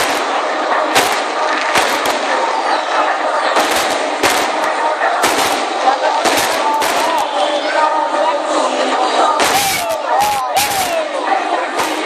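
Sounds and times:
fireworks bangs: 0:00.0 - 0:02.5, 0:03.5 - 0:07.4, 0:09.4 - 0:11.0
crowd noise: 0:00.0 - 0:12.0.

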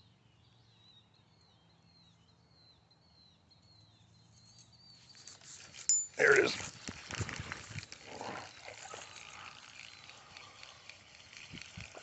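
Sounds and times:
fishing reel handling noise: 0:06.9 - 0:12.0.

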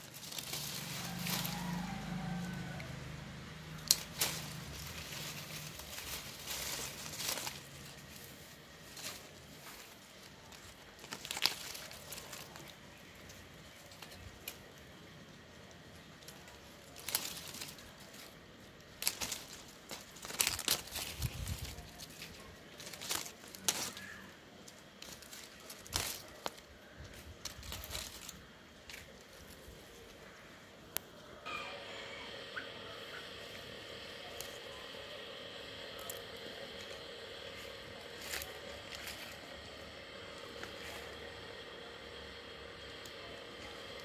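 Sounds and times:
leaves and twigs rustling: 0:00.0 - 0:44.0
pruning shears clicking: 0:00.1 - 0:14.9, 0:15.5 - 0:29.3.

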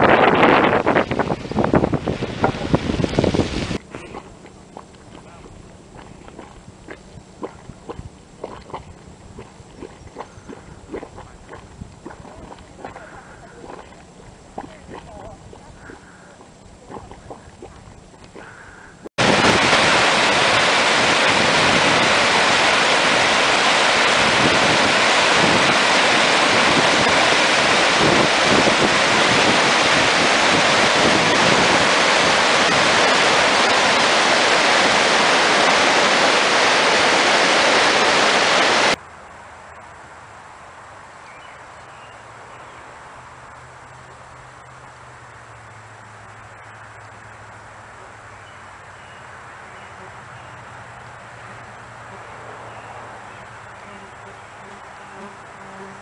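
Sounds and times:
faint outdoor background: 0:03.8 - 0:19.2, 0:38.9 - 0:56.0
river rapids rushing: 0:19.2 - 0:39.0.

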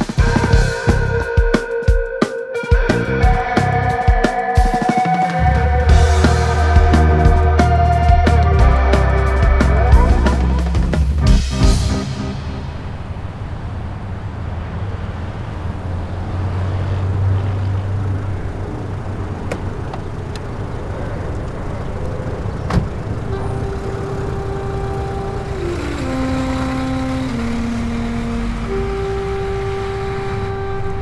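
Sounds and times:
background music with held notes: 0:00.0 - 0:12.8, 0:23.3 - 0:31.0
car driving past: 0:11.6 - 0:31.0.

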